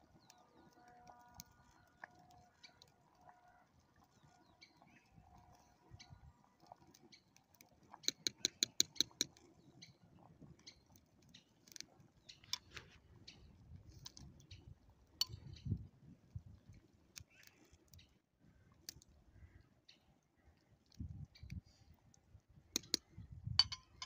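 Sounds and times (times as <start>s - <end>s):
metal ladle clinking on pot: 23.6s - 24.0s.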